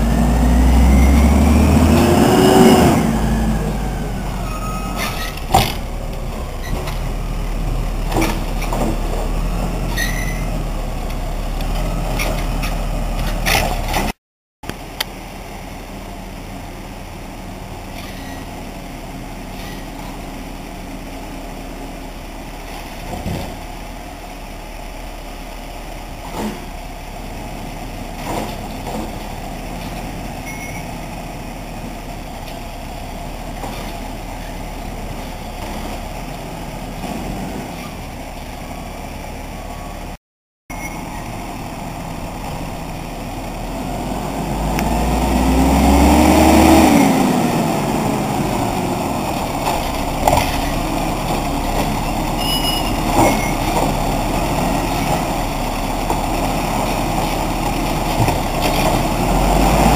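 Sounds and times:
garbage truck engine running: 0:40.7 - 0:59.9.

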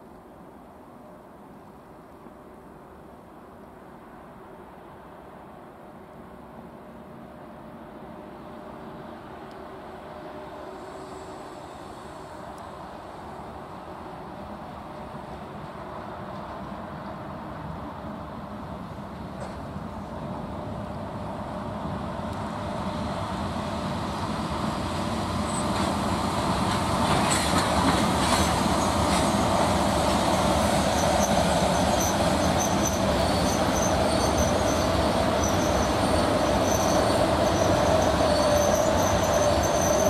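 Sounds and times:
electric locomotive passing: 0:00.4 - 0:40.0
thin high squeals: 0:30.9 - 0:40.0.

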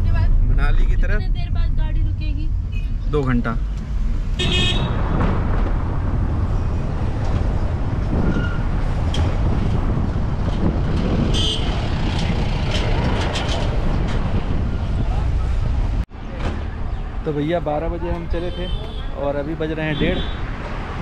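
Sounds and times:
road and engine rumble: 0:00.0 - 0:21.0
car horn toot: 0:04.4 - 0:05.0, 0:11.3 - 0:11.7.

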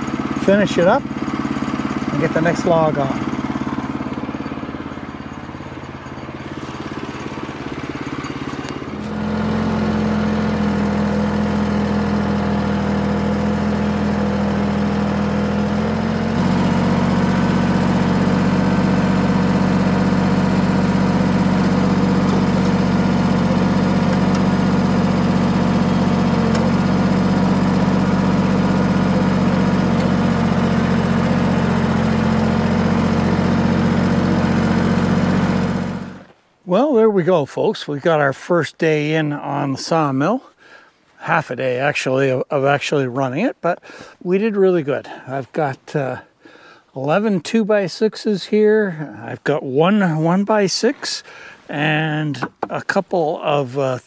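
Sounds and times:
tractor diesel engine running: 0:00.0 - 0:54.0.

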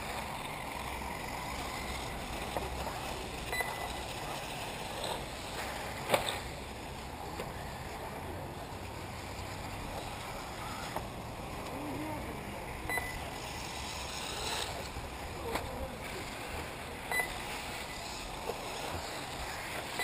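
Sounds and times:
outdoor background noise: 0:00.0 - 0:20.0
short high beeps: 0:03.5 - 0:03.9, 0:12.9 - 0:13.2, 0:17.1 - 0:18.0.

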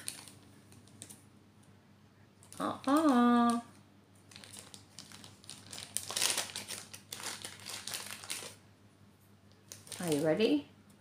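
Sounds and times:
plastic packaging crinkling: 0:00.0 - 0:01.2, 0:02.4 - 0:08.6, 0:09.6 - 0:10.6.

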